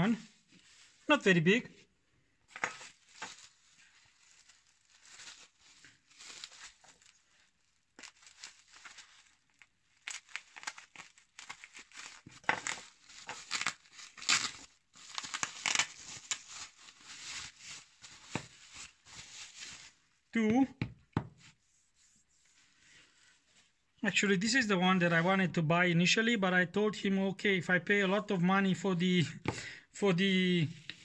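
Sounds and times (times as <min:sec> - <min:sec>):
bubble wrap crinkling and tearing: 0:02.5 - 0:20.3.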